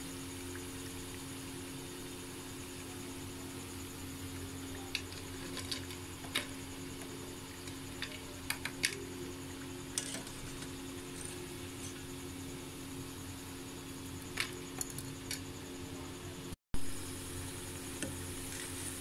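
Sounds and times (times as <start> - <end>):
food deep-frying in oil: 0.0 - 19.0.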